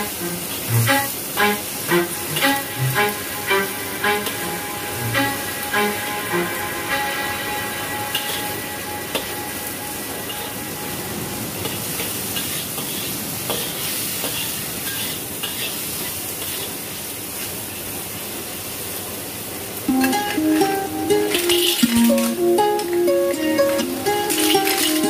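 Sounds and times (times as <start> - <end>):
vegetables sizzling in a wok: 0.0 - 25.0
metal spatula scraping a pan: 11.6 - 15.8.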